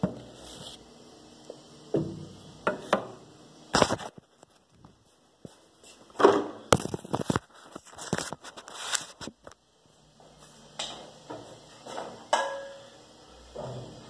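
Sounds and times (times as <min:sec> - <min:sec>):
frying pan and utensil clinks: 0:12.3 - 0:13.0.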